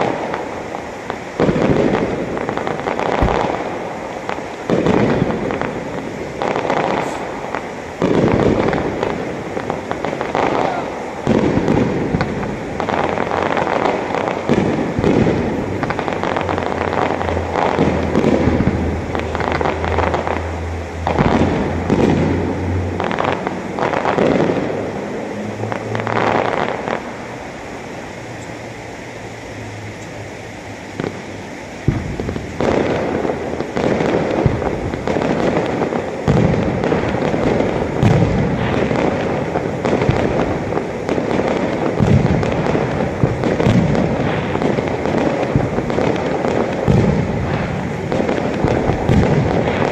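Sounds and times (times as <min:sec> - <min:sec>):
fireworks bursting and crackling: 0:00.0 - 0:49.9
sharp firework bang: 0:01.4 - 0:03.9, 0:04.6 - 0:07.4, 0:31.8 - 0:49.9.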